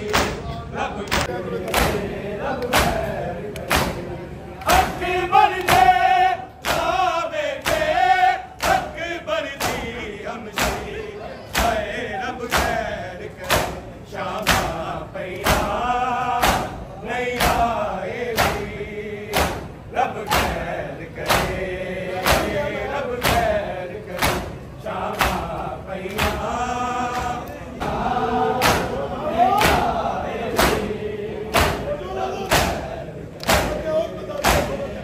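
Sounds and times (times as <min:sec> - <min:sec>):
men chanting a lament: 0:00.0 - 0:35.0
hands slapping bare chests: 0:33.4 - 0:33.8.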